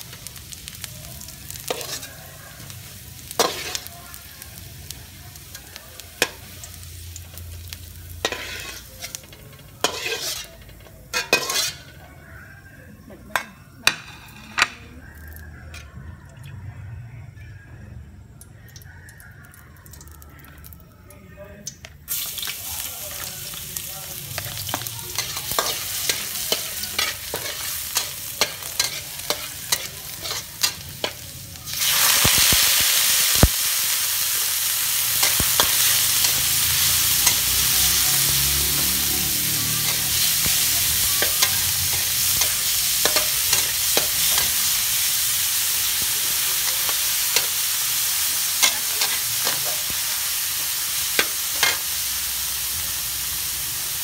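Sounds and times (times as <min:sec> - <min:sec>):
meat sizzling loudly: 0:00.0 - 0:12.1, 0:22.1 - 0:54.0
garlic frying quietly: 0:00.0 - 0:54.0
metal ladle scraping wok: 0:01.6 - 0:02.2, 0:08.1 - 0:12.1, 0:13.3 - 0:14.8, 0:24.4 - 0:32.6, 0:34.7 - 0:38.4, 0:39.7 - 0:45.4, 0:46.3 - 0:52.1.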